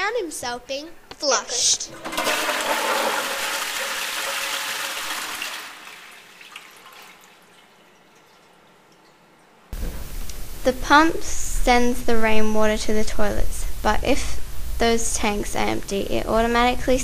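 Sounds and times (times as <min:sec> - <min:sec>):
toilet flushing: 0:01.6 - 0:08.7
faint water trickle: 0:06.1 - 0:09.7
loud steady hum and hiss: 0:09.7 - 0:17.0.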